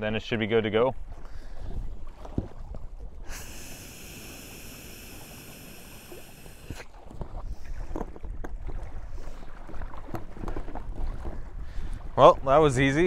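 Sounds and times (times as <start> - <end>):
person blowing into valve: 3.3 - 6.9.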